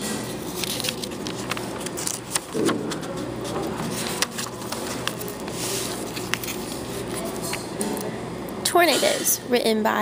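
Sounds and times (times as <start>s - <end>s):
paper pages rustling: 0.2s - 7.6s.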